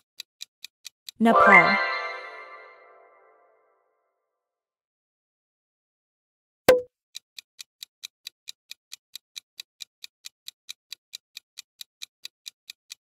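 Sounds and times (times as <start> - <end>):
clock ticking: 7.2 - 13.0.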